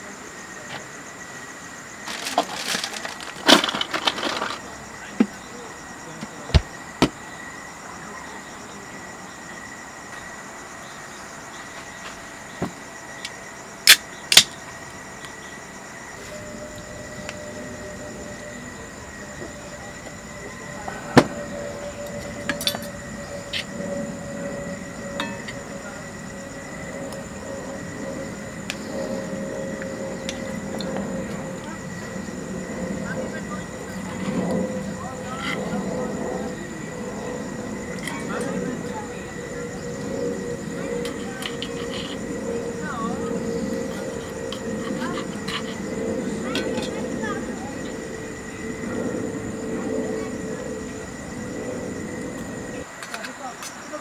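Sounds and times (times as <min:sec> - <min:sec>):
faint steady hum: 0:00.0 - 0:54.0
rummaging in cooler box: 0:02.0 - 0:04.6
faint high-pitched tone: 0:16.1 - 0:52.8.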